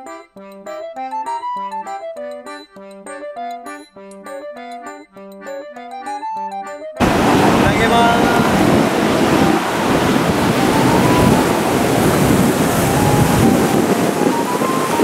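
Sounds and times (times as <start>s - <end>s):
ocean surf breaking: 7.0s - 15.0s
wind buffeting microphone: 7.0s - 15.0s.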